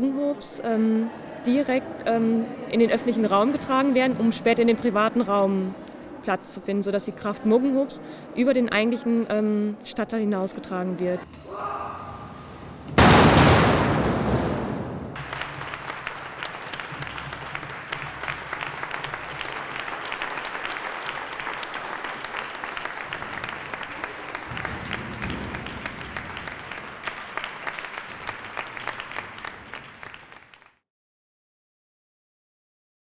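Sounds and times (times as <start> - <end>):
loud bang: 11.9 - 15.2, 24.5 - 26.7
audience applauding: 15.2 - 30.8.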